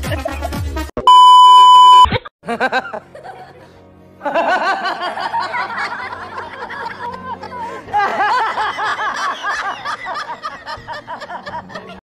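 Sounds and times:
test-pattern beep: 0:01.0 - 0:02.2
people laughing: 0:02.4 - 0:12.0.

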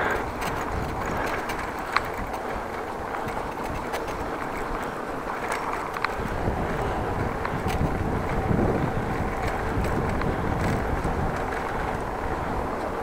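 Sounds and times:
faint clicks: 0:00.0 - 0:08.4
wind buffeting microphone: 0:00.0 - 0:13.0.

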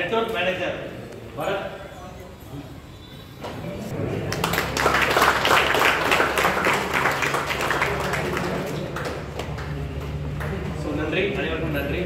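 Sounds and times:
small crowd clapping: 0:04.0 - 0:10.8.

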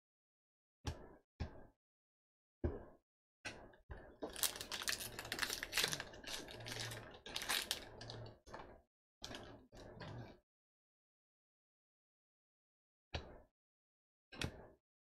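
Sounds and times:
wrapper tearing and crinkling: 0:04.3 - 0:07.8.

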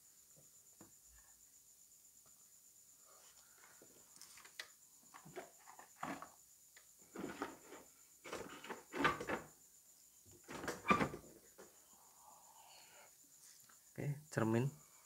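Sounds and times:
objects knocking and clattering: 0:05.1 - 0:06.4.

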